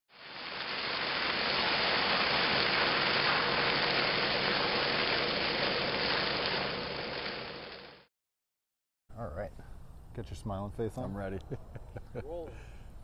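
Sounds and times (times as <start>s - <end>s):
oil fire flames rushing: 0.1s - 8.1s.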